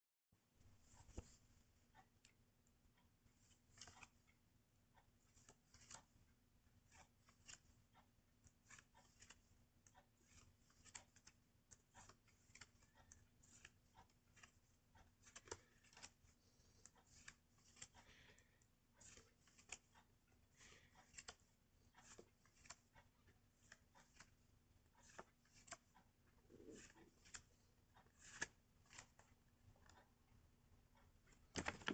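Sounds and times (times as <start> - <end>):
paper rustling and clicking: 3.4 - 4.3, 4.9 - 6.2, 6.8 - 18.4, 19.0 - 26.0, 26.7 - 30.0, 31.3 - 31.9.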